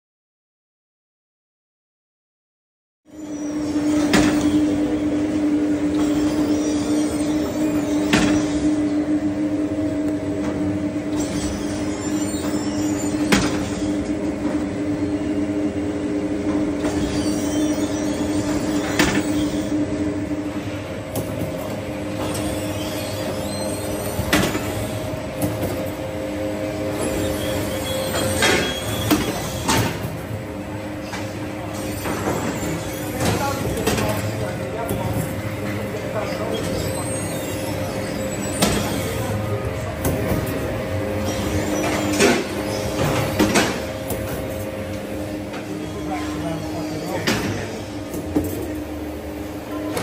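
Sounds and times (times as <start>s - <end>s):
machinery humming: 3.1s - 50.0s.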